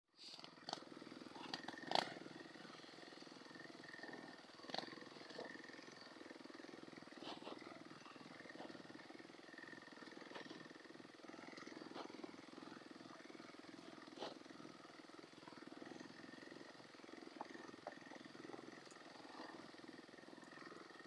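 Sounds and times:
quad engines running: 0:00.1 - 0:21.0.

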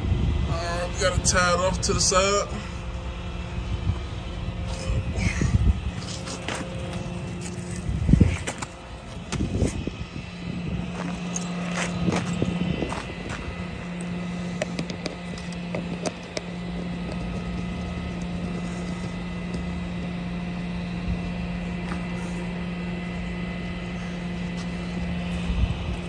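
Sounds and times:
truck engine idling: 0:01.3 - 0:26.0.

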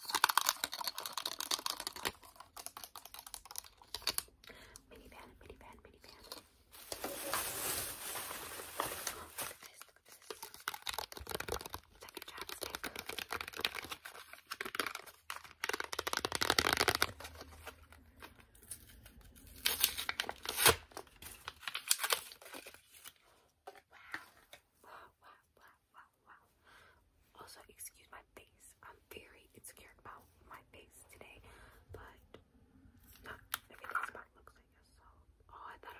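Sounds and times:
packaging crinkling and tearing: 0:00.0 - 0:04.4, 0:06.2 - 0:23.2.

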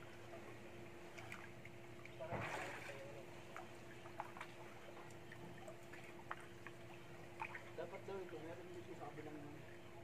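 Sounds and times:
faint steady hum: 0:00.0 - 0:10.0
pool water lapping: 0:00.0 - 0:10.0
water drips and plops: 0:01.1 - 0:07.8
water splash: 0:02.2 - 0:03.1.

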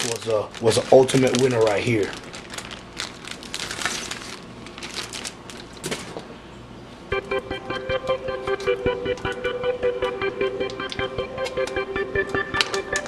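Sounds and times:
plastic bag crinkling: 0:00.0 - 0:06.2
background music: 0:07.1 - 0:13.0.

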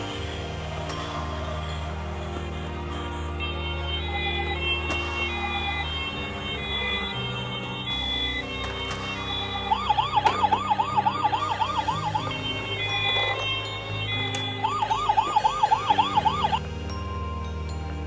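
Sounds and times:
toy electronic siren: 0:03.4 - 0:16.6
simple electronic tune: 0:03.4 - 0:18.0.

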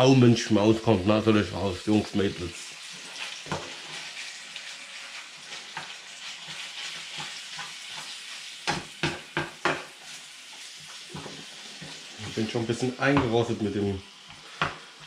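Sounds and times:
meat sizzling in a pan: 0:00.0 - 0:15.0
spatula knocking against pan: 0:07.5 - 0:09.9.

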